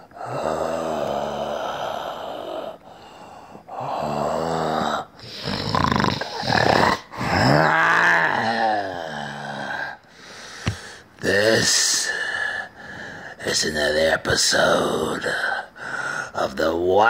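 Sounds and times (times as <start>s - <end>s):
man growling and groaning: 0.0s - 2.8s, 3.7s - 10.0s.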